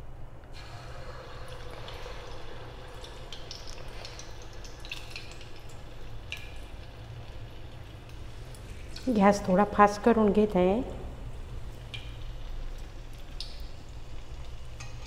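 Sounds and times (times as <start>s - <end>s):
batter deep-frying in oil: 0.5s - 15.0s.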